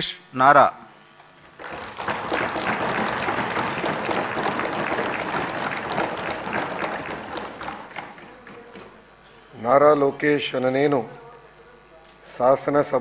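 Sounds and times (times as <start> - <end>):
crowd applauding: 1.5 - 9.0.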